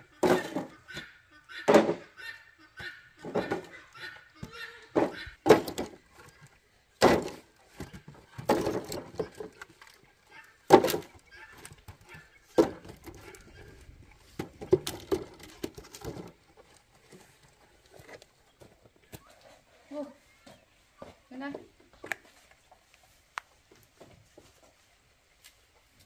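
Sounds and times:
wood scraping and rustling: 2.8s - 26.0s
firewood knocking into basket: 5.0s - 6.0s, 7.0s - 9.6s, 10.7s - 13.3s.

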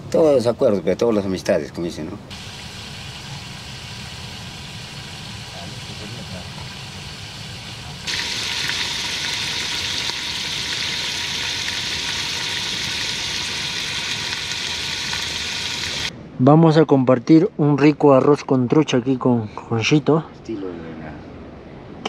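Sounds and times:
fish sizzling in a pot: 2.3s - 16.1s.

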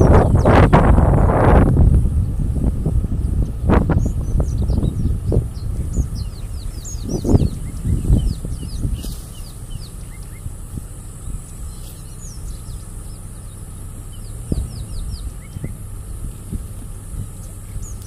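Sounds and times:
birds chirping: 0.0s - 18.0s
low rumble: 0.0s - 18.0s.

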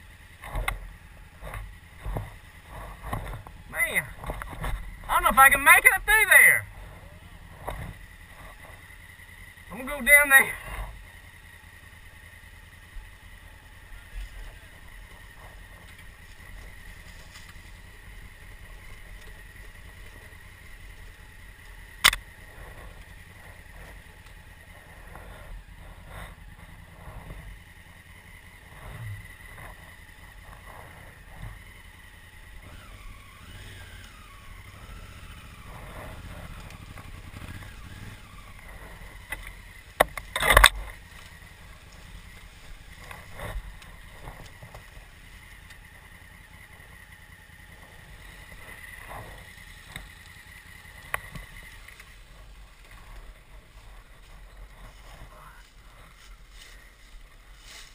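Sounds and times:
motorcycle engine humming: 0.0s - 57.9s
knocks over rough ground: 0.4s - 5.1s, 38.2s - 44.9s.

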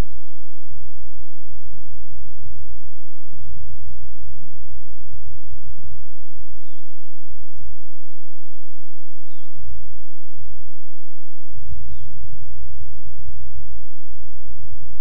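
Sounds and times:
small birds chirping: 0.0s - 1.4s, 2.9s - 10.7s, 11.7s - 14.0s.

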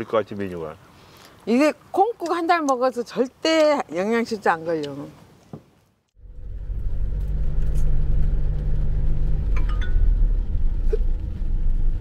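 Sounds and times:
car road and engine rumble: 6.2s - 12.0s.

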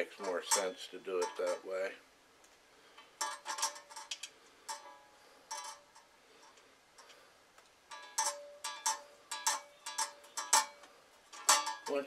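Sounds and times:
metallic clicks and clinks: 7.9s - 12.0s.

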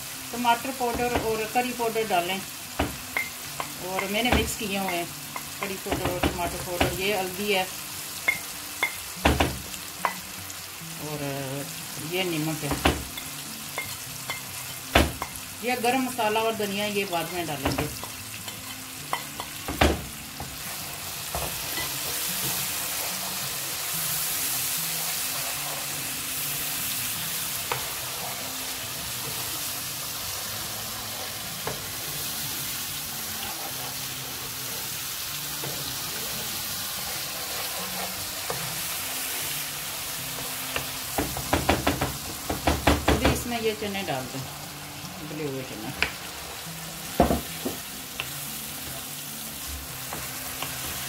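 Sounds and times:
curry sizzling in oil: 0.0s - 51.0s
wooden spoon tapping a pan: 40.7s - 43.5s.

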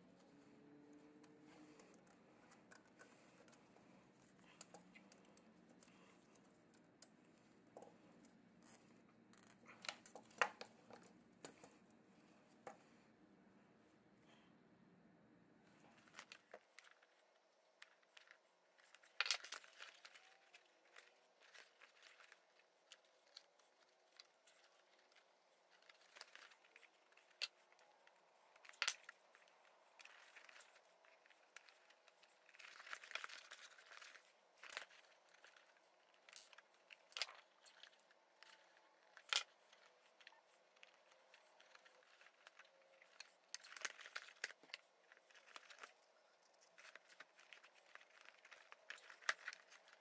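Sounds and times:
leather rustling and crinkling: 18.8s - 50.0s.

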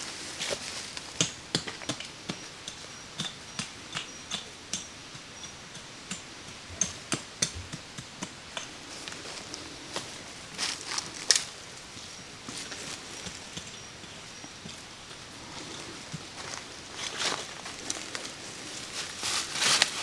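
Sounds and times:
sharp taps and knocks: 1.1s - 9.6s, 12.6s - 16.6s.

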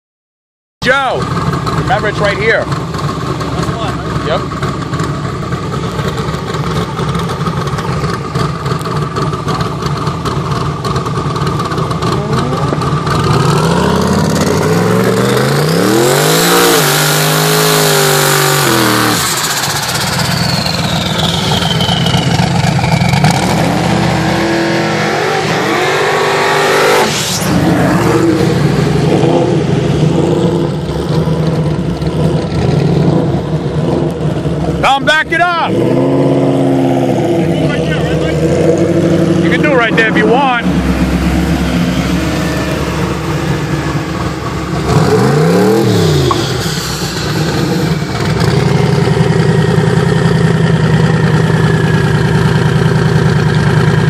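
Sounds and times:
car engines revving: 0.8s - 54.0s.

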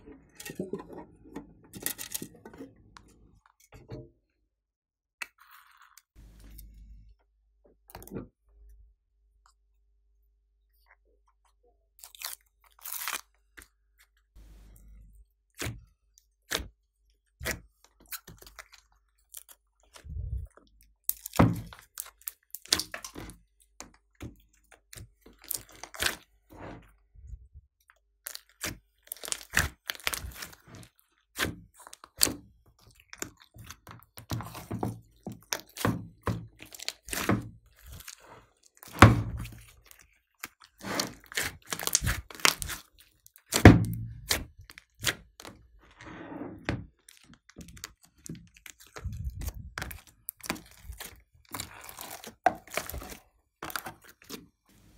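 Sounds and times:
slime squished by hand: 24.2s - 26.3s, 28.2s - 45.6s, 47.1s - 54.9s.

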